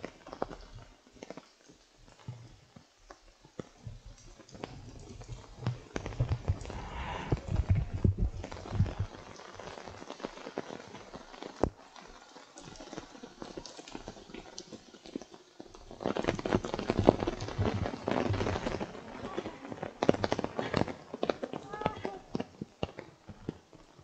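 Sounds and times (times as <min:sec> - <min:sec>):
rain tapping on an umbrella: 0:00.0 - 0:24.0.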